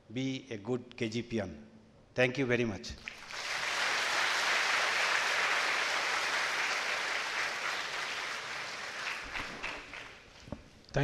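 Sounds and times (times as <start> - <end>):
audience applauding: 3.0 - 10.4.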